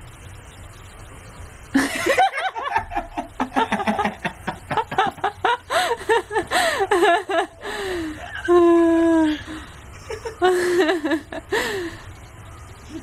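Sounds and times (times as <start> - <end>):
people laughing loudly: 1.8 - 9.0.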